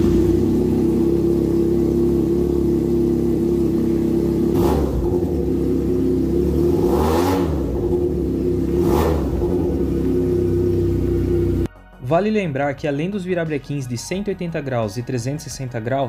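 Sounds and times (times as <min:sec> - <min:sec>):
engine throttle blips: 0:00.0 - 0:11.7
motorcycle engine idling: 0:00.0 - 0:11.7.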